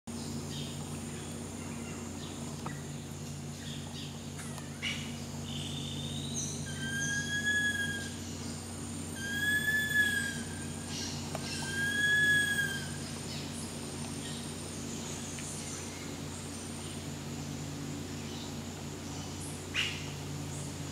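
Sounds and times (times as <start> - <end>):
high insect drone: 0.1 - 20.9
low hum: 0.1 - 20.9
bird whistling: 5.6 - 8.2, 9.1 - 13.0.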